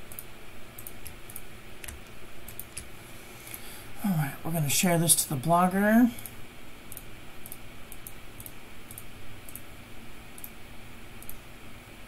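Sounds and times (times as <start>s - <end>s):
computer keyboard clicks: 0.1s - 2.9s, 6.9s - 9.7s, 10.4s - 10.6s, 11.2s - 11.4s.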